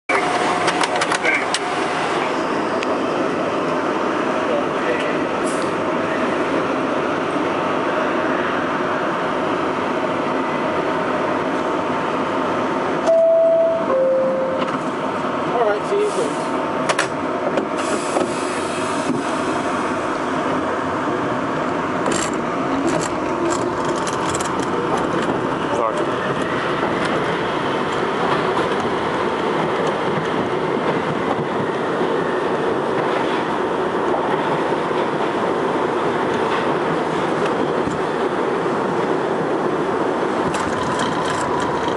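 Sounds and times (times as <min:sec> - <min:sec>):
subway train humming: 0:00.1 - 0:41.9
door chime tone: 0:13.1 - 0:14.7.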